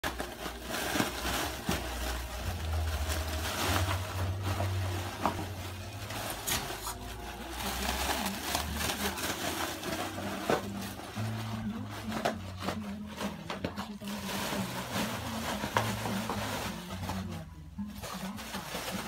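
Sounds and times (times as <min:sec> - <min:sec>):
bubble wrap crinkling: 0:00.0 - 0:19.0
low hum: 0:01.7 - 0:09.1.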